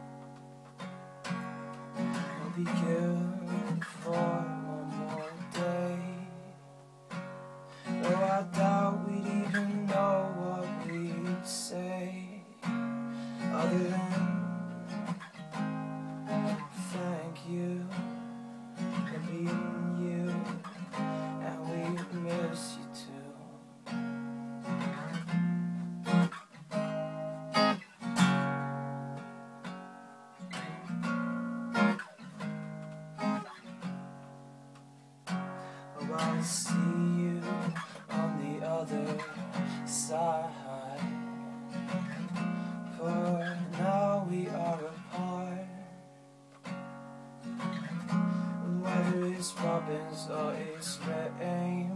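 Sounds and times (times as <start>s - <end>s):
acoustic guitar strumming: 0.0s - 51.9s.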